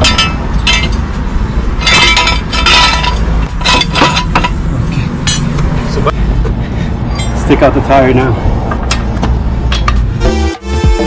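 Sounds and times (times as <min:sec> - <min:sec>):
car jack clinking metallically: 0:00.0 - 0:05.7, 0:07.1 - 0:07.6, 0:08.8 - 0:10.2.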